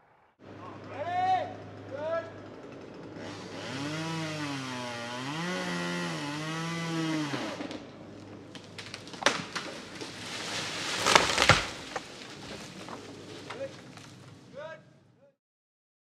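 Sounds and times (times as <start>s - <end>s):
chainsaw cutting: 0.4s - 14.5s
sharp wood cracks: 5.6s - 14.4s.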